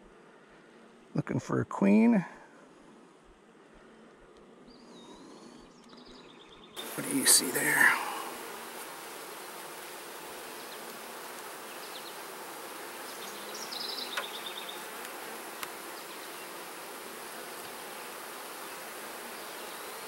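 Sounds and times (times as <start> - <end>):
bees humming: 3.0 - 20.0
hive frame clicks: 14.0 - 15.8.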